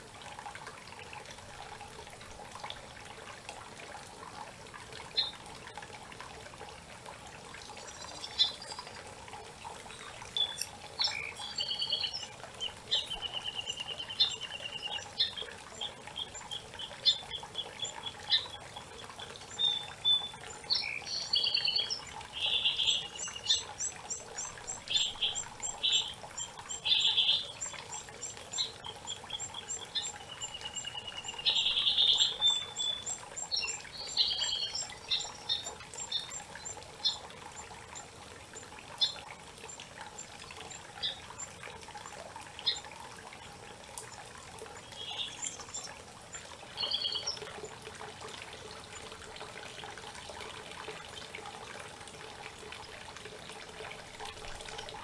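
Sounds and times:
songbirds singing and calling: 0:05.1 - 0:05.4, 0:07.6 - 0:09.1, 0:09.7 - 0:41.6, 0:42.6 - 0:47.8.

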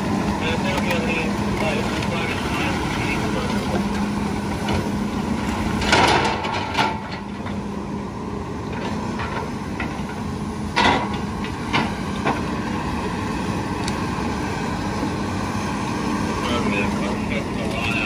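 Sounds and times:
heavy diesel machinery humming: 0:00.0 - 0:18.0
scrap debris clanking and crashing: 0:00.7 - 0:07.6.

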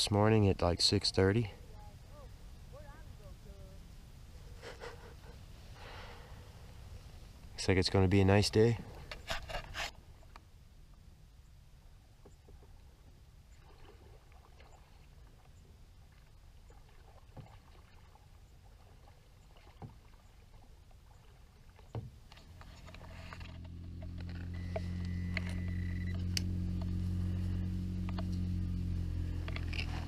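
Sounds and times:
faint low outdoor rumble: 0:00.0 - 0:30.0
bulldozer diesel engine humming: 0:22.4 - 0:30.0.

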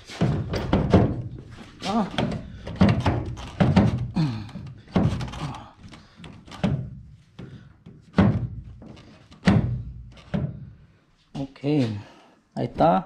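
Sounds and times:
plastic housing thunks and knocks: 0:00.2 - 0:01.5, 0:02.1 - 0:10.7.

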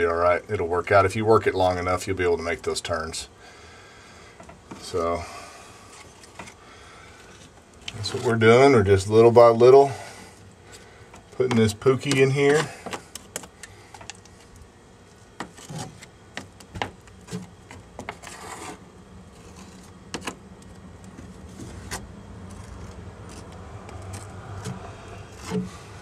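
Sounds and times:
plastic spreader scraping paste: 0:17.2 - 0:20.4.

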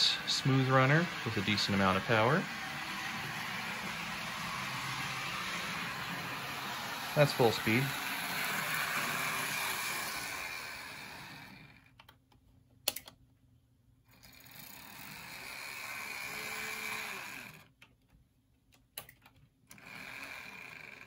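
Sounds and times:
wheels clicking on track: 0:00.0 - 0:11.6
model train motor whirring: 0:00.0 - 0:11.9, 0:14.1 - 0:17.7, 0:19.7 - 0:21.0.

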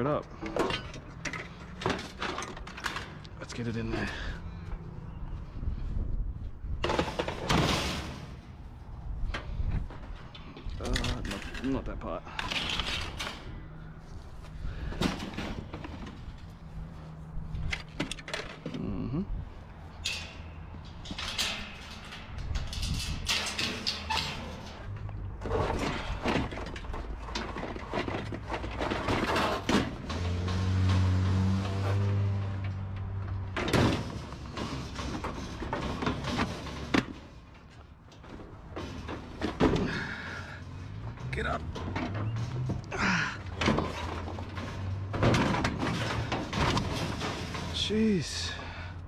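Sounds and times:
metal mesh gate rattling: 0:06.8 - 0:08.6, 0:10.2 - 0:13.6, 0:20.0 - 0:48.6
plastic panels knocking and rattling: 0:25.4 - 0:31.0, 0:33.4 - 0:40.1, 0:43.5 - 0:47.8.

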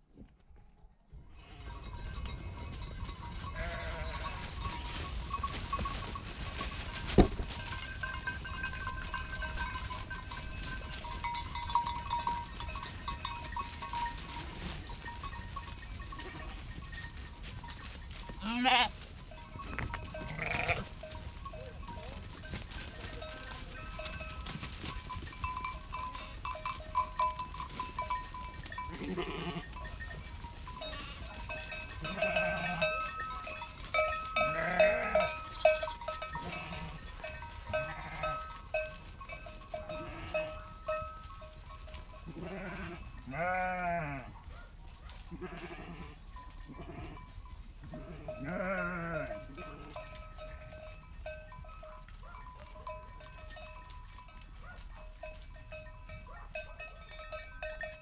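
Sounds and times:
sheep bells clinking: 0:00.6 - 0:58.0
sheep bleating: 0:03.6 - 0:04.4, 0:18.4 - 0:19.0, 0:20.2 - 0:21.0, 0:28.9 - 0:29.7, 0:32.0 - 0:32.9, 0:34.4 - 0:37.0, 0:37.8 - 0:38.4, 0:42.3 - 0:44.3, 0:45.3 - 0:46.2, 0:48.0 - 0:50.0.

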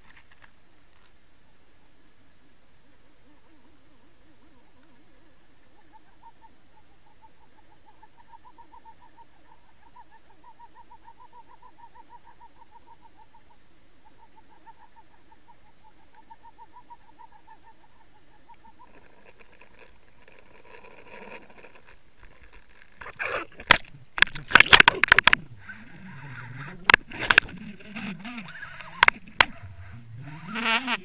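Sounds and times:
underwater pulsing motor hum: 0:18.5 - 0:31.0
underwater rushing: 0:23.1 - 0:31.0.

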